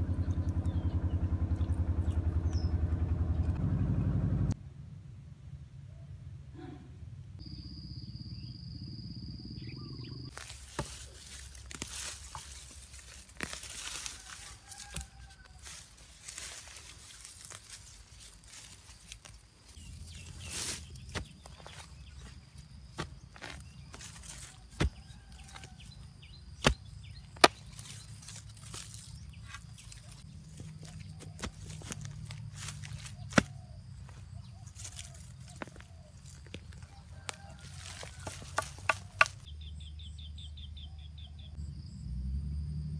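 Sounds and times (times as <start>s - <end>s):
high insect whine: 7.4s - 10.5s
digging tool striking soil: 10.3s - 15.2s, 18.4s - 34.2s, 34.8s - 39.5s
weeds being pulled up: 10.3s - 39.5s.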